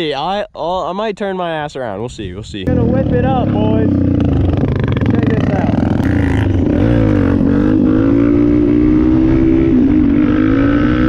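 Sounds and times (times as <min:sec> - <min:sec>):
dirt bike engine revving: 0:02.7 - 0:11.0.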